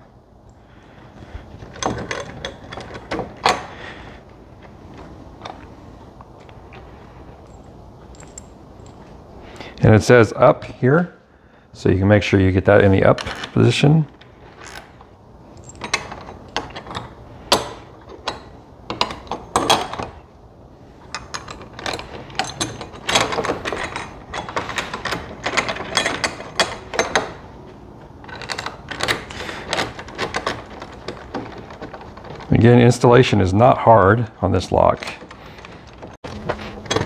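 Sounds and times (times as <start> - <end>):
metal clicks taps and rattles: 21.1 - 27.4.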